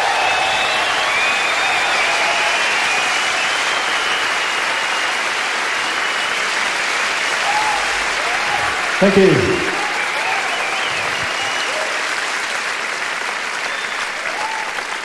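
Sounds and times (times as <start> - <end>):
audience applauding and cheering: 0.0 - 15.0.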